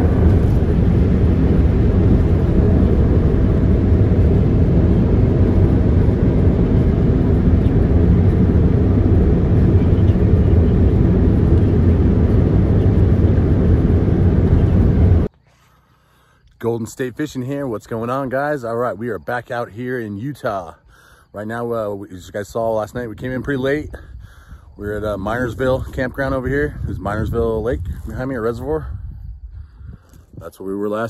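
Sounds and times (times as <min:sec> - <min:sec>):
loud low rumbling: 0:00.0 - 0:15.3, 0:22.8 - 0:30.4.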